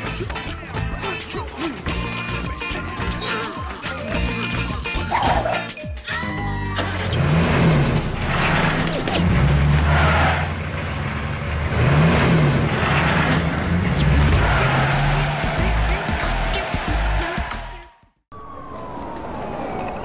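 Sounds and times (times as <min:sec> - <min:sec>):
car engine revving: 0:06.9 - 0:18.0.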